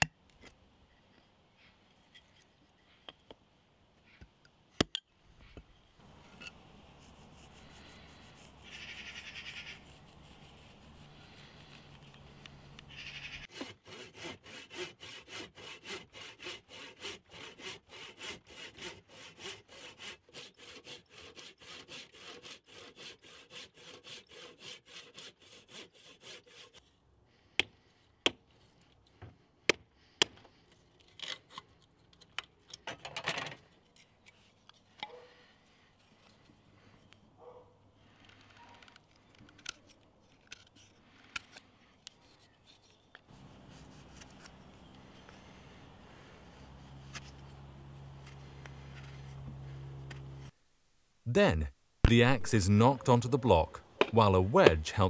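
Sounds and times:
hand saw cutting wood: 6.0s - 26.9s, 42.3s - 50.6s, 54.0s - 55.0s
faint steady hiss: 43.3s - 55.0s.

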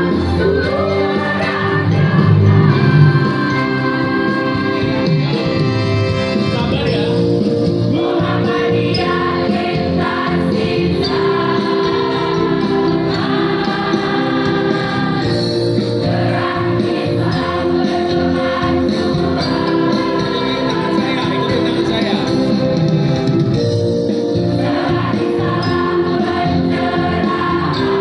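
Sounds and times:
female choir singing: 0.0s - 5.1s, 8.0s - 21.3s, 24.6s - 28.0s.

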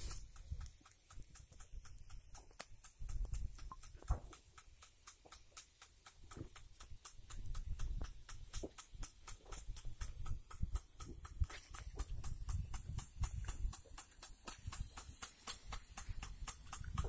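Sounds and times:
sprinkler arm clacking: 0.0s - 17.0s
sprinkler water spraying: 0.0s - 17.0s
wind on microphone: 10.0s - 13.9s, 16.0s - 17.0s.

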